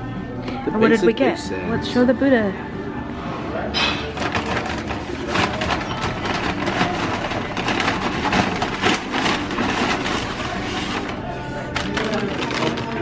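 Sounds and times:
paper bag crinkling: 4.1s - 13.0s.

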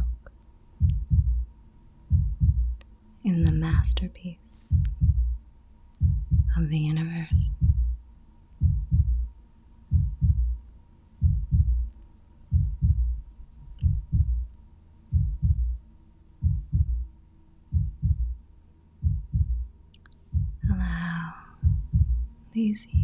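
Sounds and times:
slow heartbeat thumps: 0.0s - 2.8s, 3.4s - 4.1s, 4.7s - 5.4s, 6.0s - 8.0s, 8.6s - 9.3s, 9.9s - 11.9s, 12.5s - 14.5s, 15.1s - 18.4s, 19.0s - 19.7s, 20.3s - 23.0s
faint steady hum: 0.0s - 23.0s.

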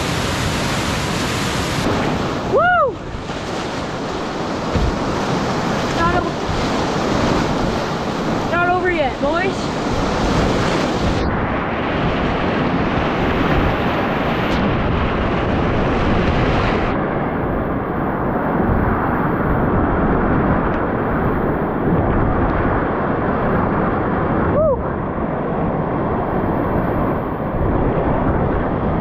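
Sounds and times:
whitewater rushing: 0.0s - 16.9s.

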